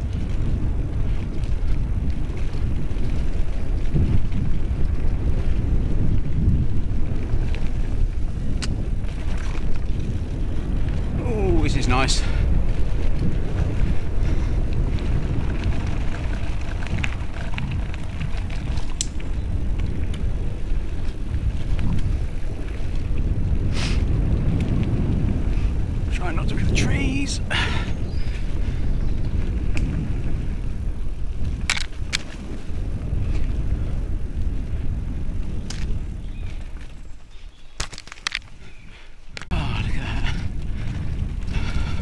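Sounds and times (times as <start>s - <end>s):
bike clicks and rattles: 0.0s - 42.0s
tyres rolling over dirt trail: 0.0s - 42.0s
wind rushing over microphone: 0.0s - 42.0s
bike clicks and knocks: 7.2s - 10.2s, 14.7s - 22.1s, 31.4s - 32.6s, 35.4s - 37.0s, 37.6s - 38.6s.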